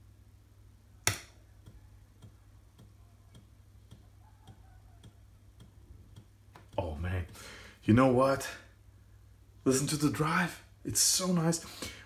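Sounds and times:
floppy drive ticking: 0:01.0 - 0:07.5.

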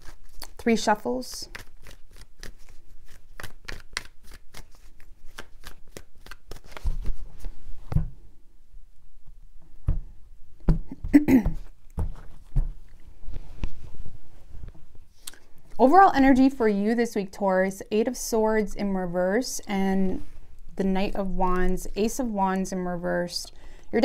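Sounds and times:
cards shuffling: 0:00.0 - 0:08.0.

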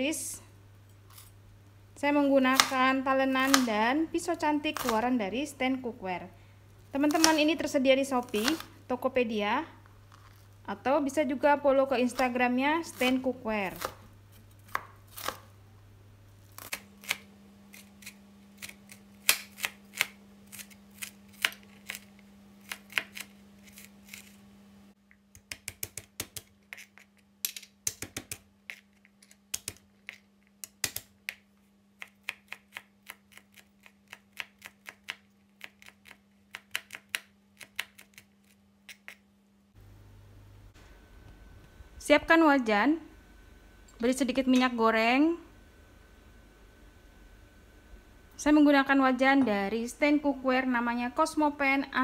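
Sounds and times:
knife chopping on plastic board: 0:25.3 - 0:26.9, 0:27.8 - 0:28.5.

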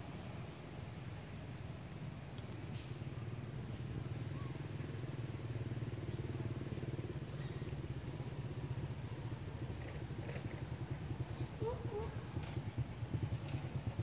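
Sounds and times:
motor engine running at low revs: 0:03.3 - 0:14.0.

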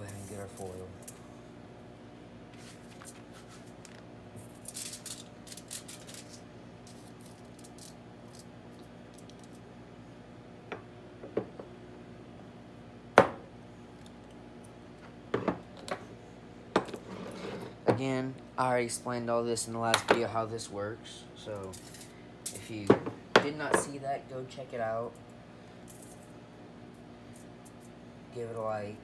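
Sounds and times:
aluminium foil crinkling and tearing: 0:02.6 - 0:08.5.

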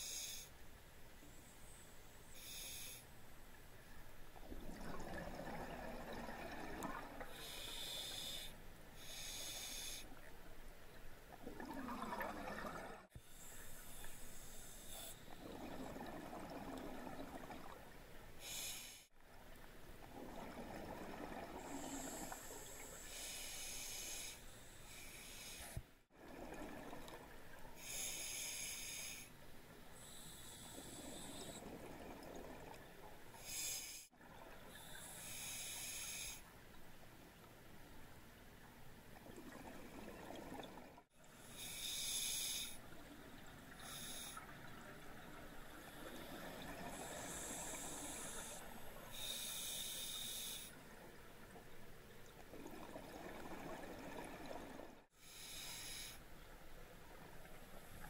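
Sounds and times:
regulator breath hissing: 0:02.4 - 0:03.1, 0:41.4 - 0:42.8, 0:47.0 - 0:50.8
exhaled bubbles rushing: 0:04.5 - 0:07.3, 0:11.4 - 0:13.1.

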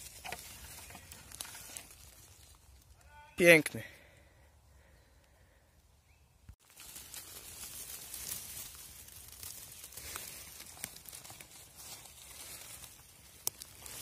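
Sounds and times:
twigs snapping: 0:00.0 - 0:03.0, 0:06.6 - 0:14.0
dry leaves rustling and crackling: 0:00.0 - 0:03.1, 0:06.6 - 0:14.0.

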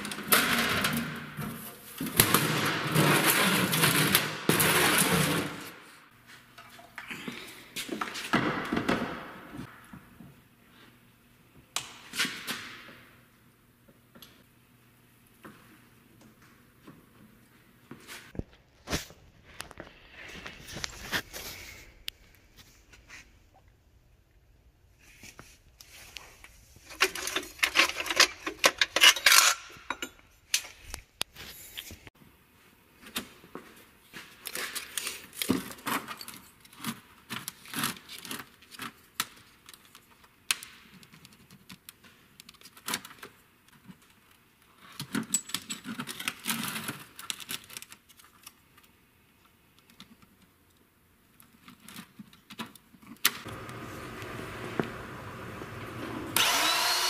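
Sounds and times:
metal tools clinking and clattering: 0:26.9 - 0:30.3.

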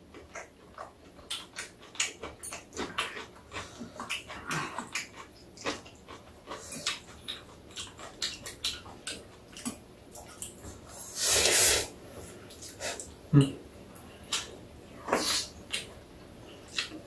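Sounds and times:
eating smacks: 0:00.1 - 0:10.8
person slurping noodles: 0:11.0 - 0:11.9.

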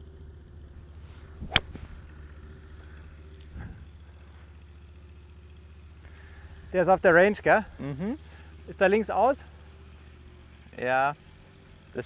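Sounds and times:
golf club swish: 0:01.0 - 0:02.1
club cracking against ball: 0:01.4 - 0:02.0.

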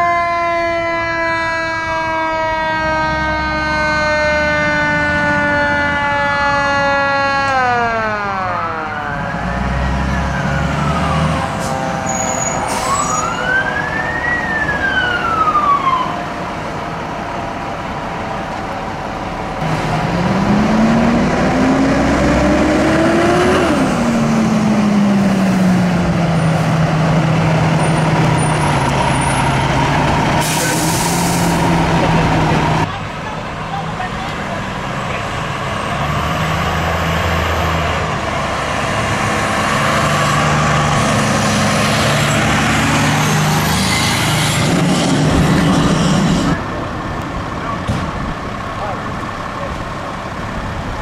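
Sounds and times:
electronic siren wailing: 0:00.0 - 0:16.3
truck rumble: 0:00.0 - 0:51.0.

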